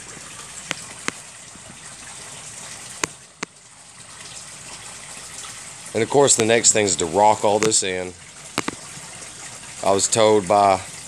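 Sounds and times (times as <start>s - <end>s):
water pouring into pond: 0.0s - 11.0s
sharp clicks: 8.6s - 8.8s.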